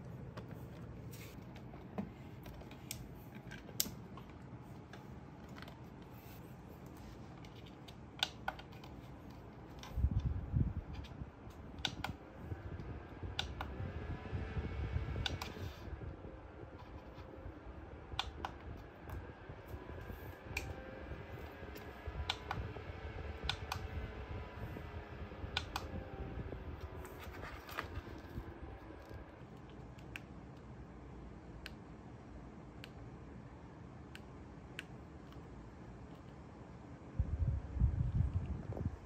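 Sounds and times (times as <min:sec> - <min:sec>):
fan humming: 0:00.0 - 0:39.0.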